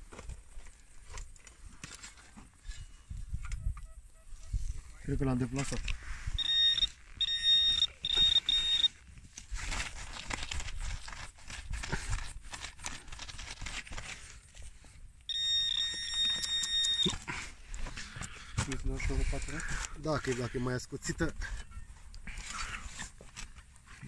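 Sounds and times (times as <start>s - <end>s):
soil and dry grass crunching: 0.0s - 3.4s, 4.3s - 24.0s
metal detector beeping: 3.5s - 4.6s, 6.3s - 9.0s, 15.3s - 17.3s.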